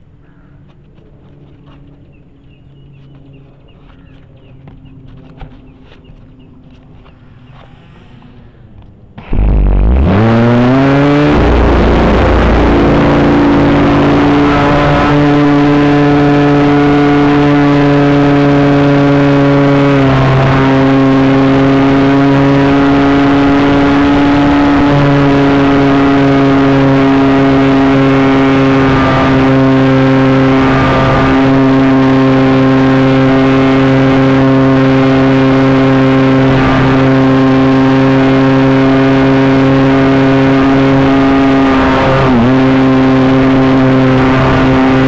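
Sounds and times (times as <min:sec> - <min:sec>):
model airplane motor and propeller: 0:00.6 - 0:14.3, 0:15.1 - 0:45.0.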